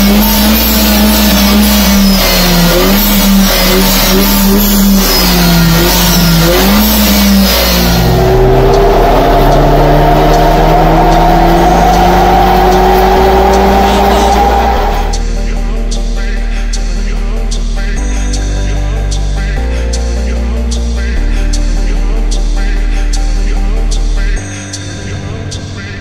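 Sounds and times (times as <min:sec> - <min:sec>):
car engine under load rising pitch: 0:00.0 - 0:17.9, 0:23.6 - 0:26.0.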